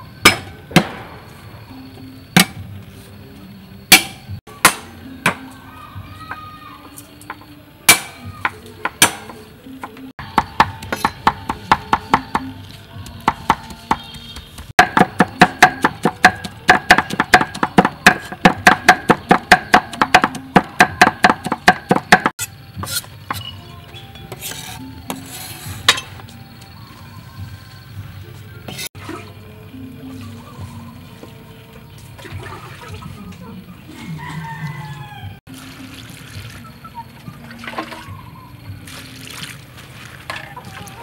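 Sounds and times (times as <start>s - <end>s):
cleaver chopping on wooden board: 3.9s - 5.4s, 7.9s - 8.2s, 8.8s - 9.4s, 10.2s - 12.5s, 13.1s - 23.4s.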